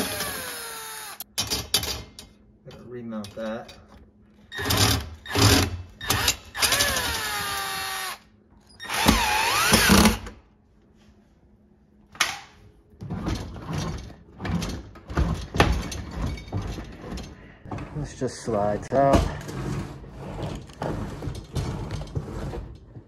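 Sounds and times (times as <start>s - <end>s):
cordless drill whining: 0.0s - 1.2s, 6.0s - 8.2s, 8.8s - 10.2s
knocks and rattles: 13.0s - 18.4s.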